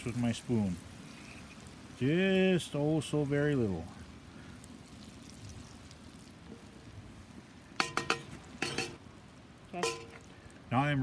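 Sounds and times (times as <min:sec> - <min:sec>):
butter sizzling: 0:00.0 - 0:11.0
spoon knocking on metal pot: 0:07.8 - 0:09.0, 0:09.8 - 0:10.2.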